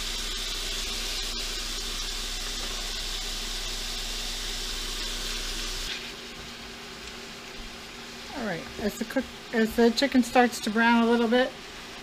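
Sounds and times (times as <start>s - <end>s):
chicken sizzling in a pan: 0.0s - 9.1s.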